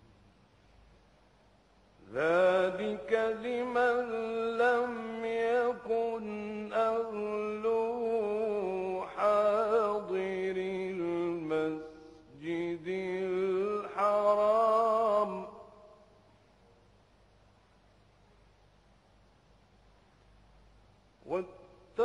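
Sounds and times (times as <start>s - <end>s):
man chanting melodically: 2.0s - 15.7s, 21.2s - 22.0s
man breathing: 11.8s - 12.4s.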